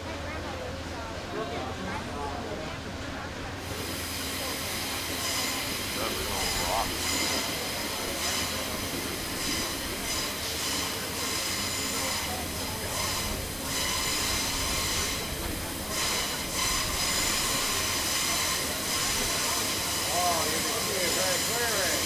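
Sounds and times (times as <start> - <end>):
train wheels rumbling on rail: 0.0 - 22.0
high wheel squeal: 5.0 - 22.0.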